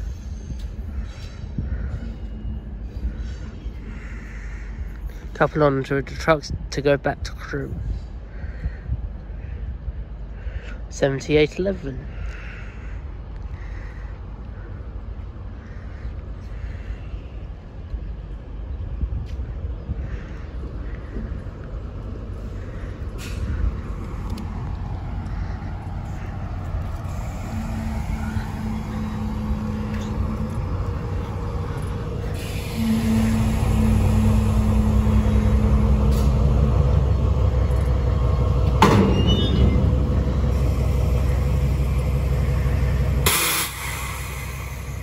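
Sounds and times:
diesel locomotive engine rumbling: 0:00.0 - 0:45.0
air brake hiss: 0:32.3 - 0:35.0, 0:43.2 - 0:45.0
sharp metallic clank: 0:38.8 - 0:40.2, 0:43.2 - 0:44.4.

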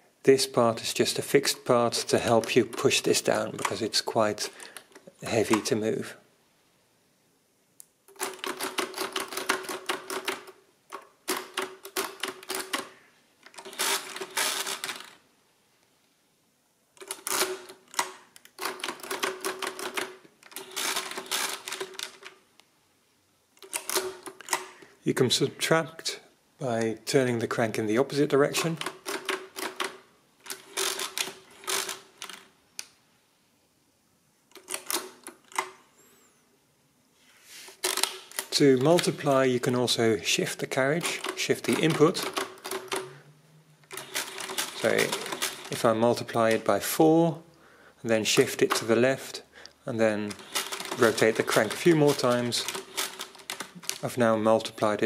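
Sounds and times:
crank turning clatter: 0:11.3 - 0:15.2, 0:17.0 - 0:22.3, 0:28.8 - 0:32.4, 0:43.8 - 0:46.7, 0:50.2 - 0:54.1
calculator keys clacking: 0:50.2 - 0:54.0.

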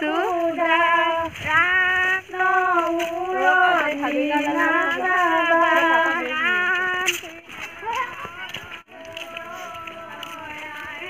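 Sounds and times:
woman singing unaccompanied: 0:00.0 - 0:11.0.

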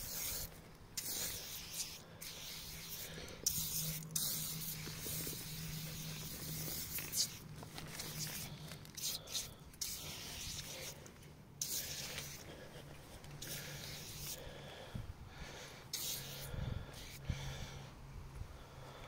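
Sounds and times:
aerosol can spraying: 0:00.0 - 0:11.0, 0:11.6 - 0:12.4, 0:13.4 - 0:14.4, 0:15.9 - 0:17.2.

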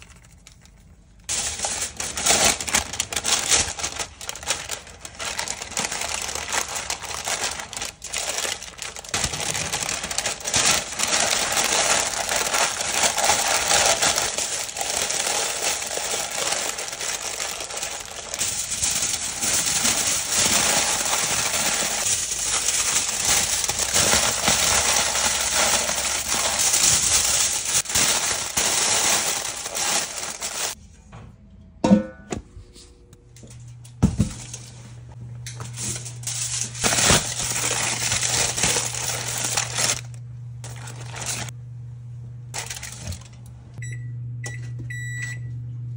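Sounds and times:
paper and foil crinkling: 0:00.0 - 0:30.8, 0:35.6 - 0:41.6, 0:42.5 - 0:43.4.

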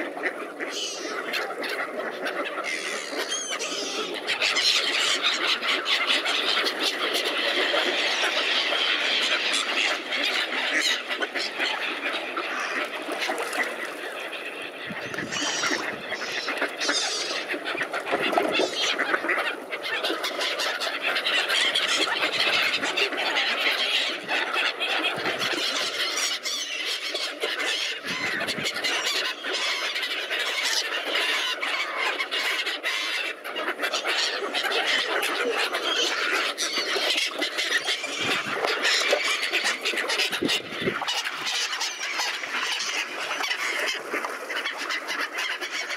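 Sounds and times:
ducks quacking: 0:00.0 - 0:45.9
gulls squealing: 0:14.8 - 0:17.5.

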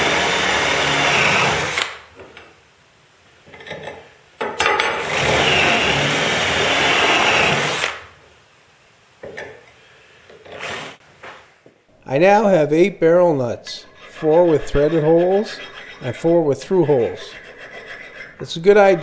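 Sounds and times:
cordless drill drilling steel: 0:00.0 - 0:01.8, 0:05.1 - 0:07.9.

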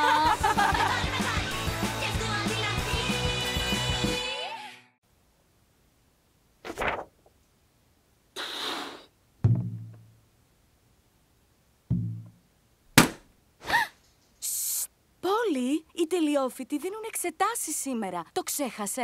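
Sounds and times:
brief hiss: 0:08.4 - 0:09.1.

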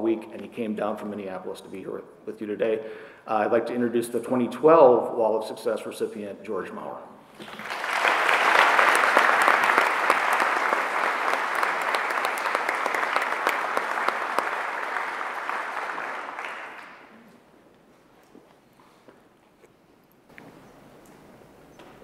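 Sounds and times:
audience applauding: 0:07.4 - 0:17.2.

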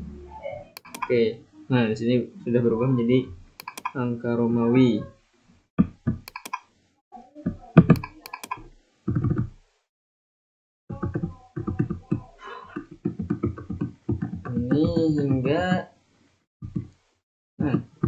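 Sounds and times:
keyboard and mouse clicks: 0:00.8 - 0:01.1, 0:03.6 - 0:04.0, 0:06.2 - 0:06.7, 0:07.8 - 0:09.5.

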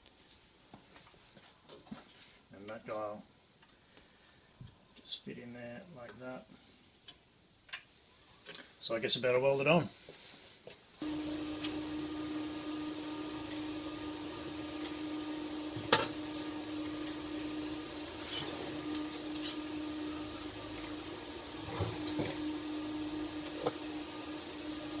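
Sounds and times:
steady hum: 0:11.0 - 0:25.0.

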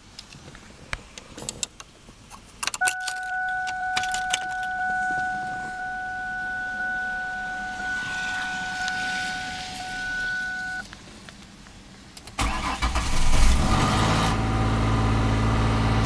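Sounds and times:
keys jangling: 0:02.6 - 0:04.8
car engine starting and running: 0:02.7 - 0:16.0
engine whine: 0:02.8 - 0:11.0.

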